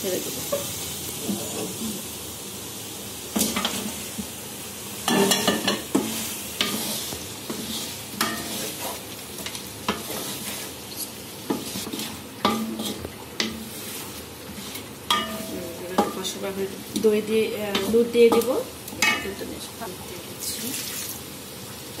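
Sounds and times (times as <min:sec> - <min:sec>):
frying sizzle in a pan: 0:00.0 - 0:22.0
spoon scraping a pan: 0:03.4 - 0:04.0, 0:05.1 - 0:19.4.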